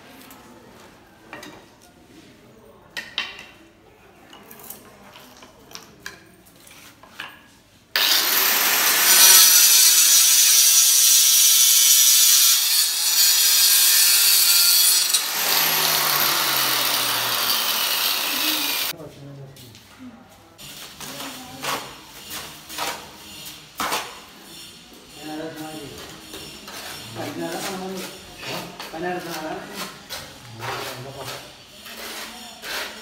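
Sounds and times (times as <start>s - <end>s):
angle grinder cutting stone: 8.0s - 18.9s.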